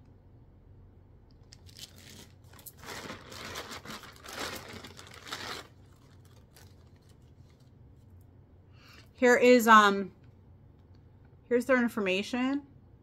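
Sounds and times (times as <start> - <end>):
plastic packaging crinkling: 1.4 - 7.7.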